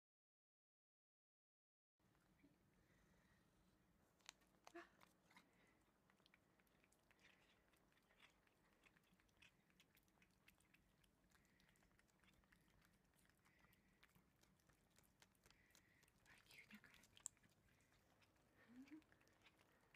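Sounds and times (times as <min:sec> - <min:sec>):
cats licking wet clicks: 0:04.1 - 0:19.9.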